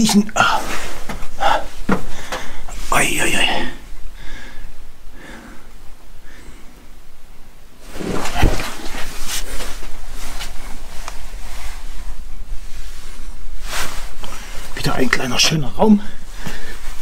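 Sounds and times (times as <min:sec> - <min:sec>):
clothing scraping against rock: 0:07.8 - 0:14.8.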